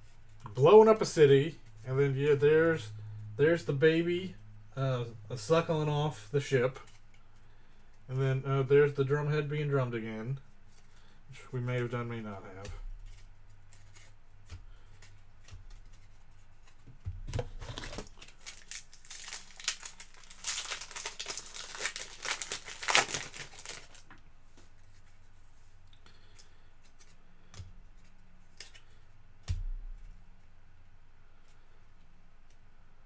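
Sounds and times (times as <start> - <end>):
cards clicking and tapping: 12.5 - 18.1
wrapper tearing and crinkling: 17.4 - 24.1.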